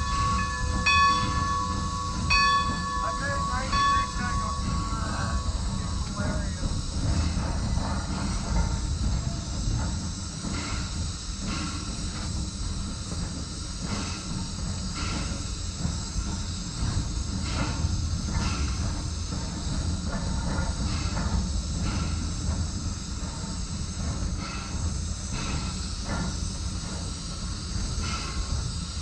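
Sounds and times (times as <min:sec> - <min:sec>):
locomotive knocks: 0:00.0 - 0:10.0
steam hissing: 0:00.0 - 0:29.0
steam locomotive rumble: 0:00.0 - 0:29.0.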